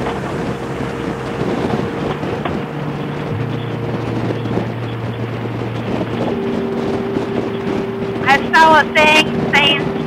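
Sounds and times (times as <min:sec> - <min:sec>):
motorcycle engine running: 0:00.0 - 0:10.0
wind rushing over microphone: 0:00.0 - 0:10.0.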